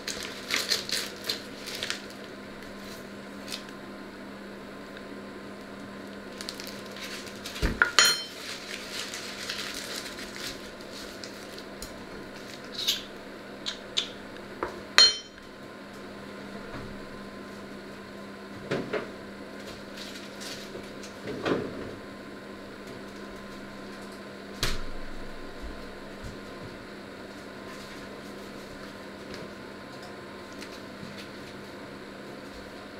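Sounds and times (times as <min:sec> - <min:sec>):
paper bag rustling: 0:00.0 - 0:02.2, 0:06.3 - 0:11.7
steady low hum: 0:00.0 - 0:32.9
pots and utensils handled: 0:07.8 - 0:08.4.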